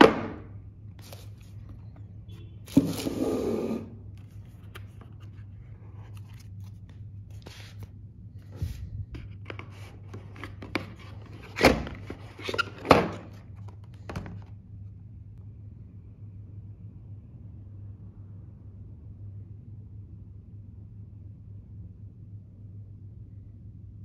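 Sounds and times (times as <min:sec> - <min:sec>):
faint low hum: 0:13.2 - 0:24.0.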